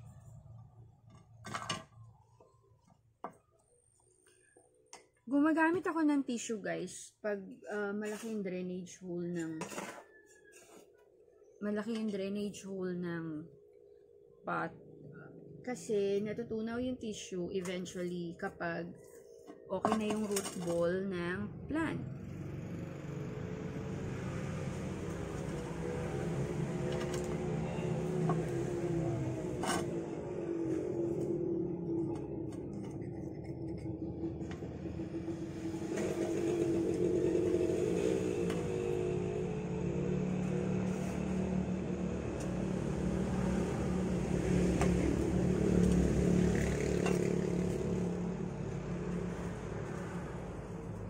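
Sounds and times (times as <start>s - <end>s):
vehicle engine running: 19.8s - 51.0s.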